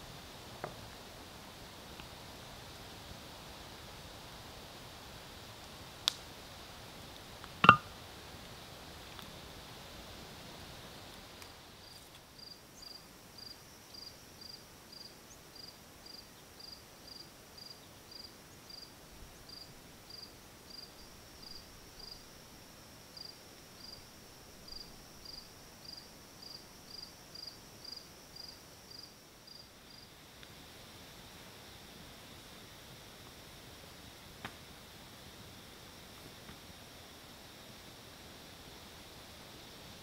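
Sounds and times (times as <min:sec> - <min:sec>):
background hiss: 0:00.0 - 0:40.0
cricket chirping: 0:11.8 - 0:30.1.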